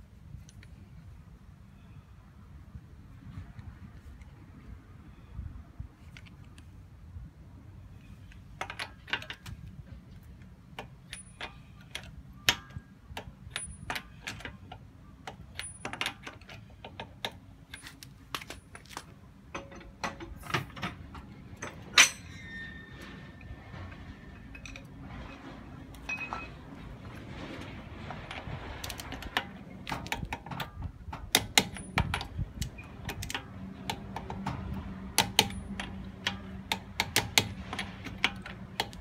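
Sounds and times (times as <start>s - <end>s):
metallic clicks of lug nuts: 8.0s - 23.2s, 28.3s - 39.0s.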